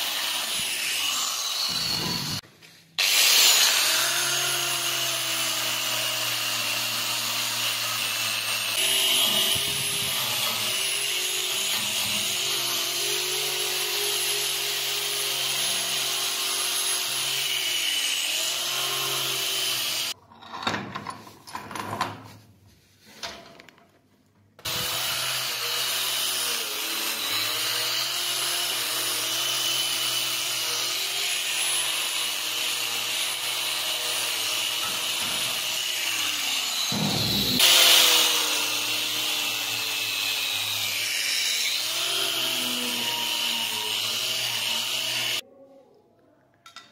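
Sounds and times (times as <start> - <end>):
angle grinder wire brushing steel: 24.7 - 45.4.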